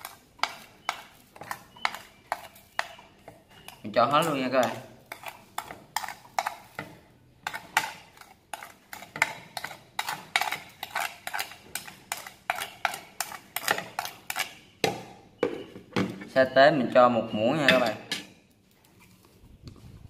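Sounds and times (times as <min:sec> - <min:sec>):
spoon tapping on a leaf: 0:00.0 - 0:06.9.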